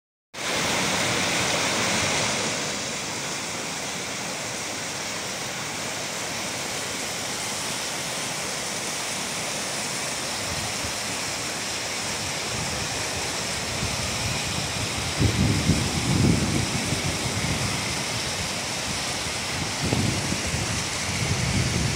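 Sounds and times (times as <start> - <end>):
stream rapids rushing: 0.4 - 21.9
wind buffeting microphone: 12.2 - 21.9.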